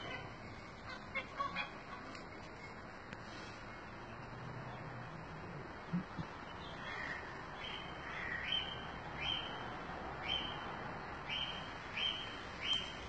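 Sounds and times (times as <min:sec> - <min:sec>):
outdoor hiss: 0:11.4 - 0:13.0.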